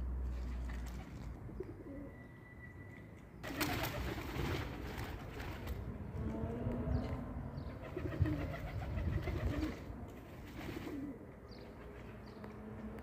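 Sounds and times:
doves cooing: 3.4 - 12.2.

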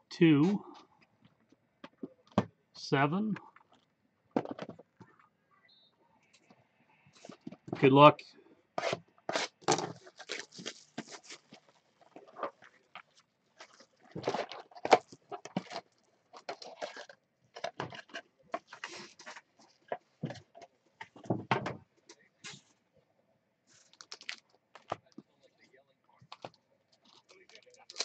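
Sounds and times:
card packs handled: 8.8 - 20.0, 23.7 - 25.2, 26.2 - 28.0
shrink-wrap crackling: 10.0 - 12.3, 23.7 - 24.5, 27.1 - 28.0.

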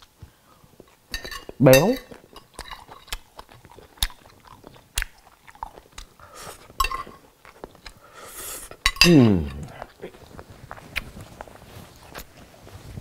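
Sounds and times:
cutlery clicking on china plate: 1.2 - 3.2, 8.8 - 9.6
chewing and mouth sounds: 2.0 - 12.4.

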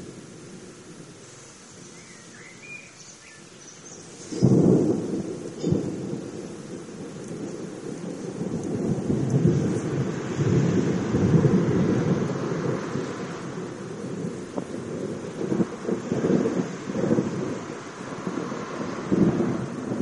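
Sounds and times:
low thunder rumble: 4.2 - 20.0
thunder clap: 4.3 - 20.0.

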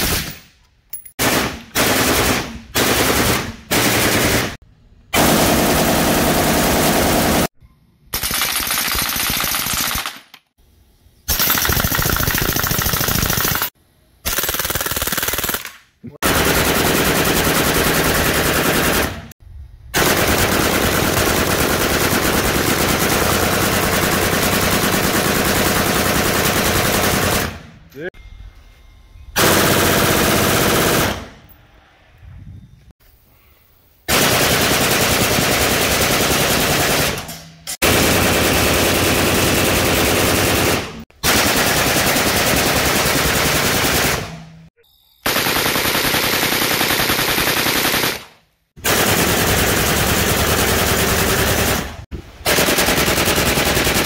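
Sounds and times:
automatic rifle fire: 45.2 - 54.0.

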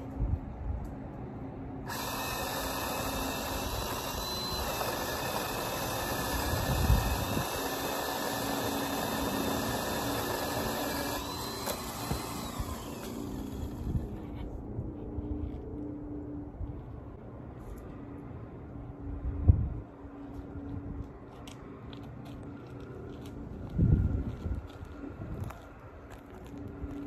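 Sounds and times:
electric pole saw running: 1.8 - 14.4.

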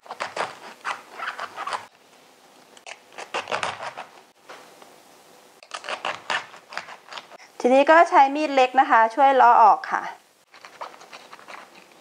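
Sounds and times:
knife cutting cabbage: 0.0 - 1.9, 2.8 - 4.2, 5.6 - 7.4, 10.5 - 12.0.

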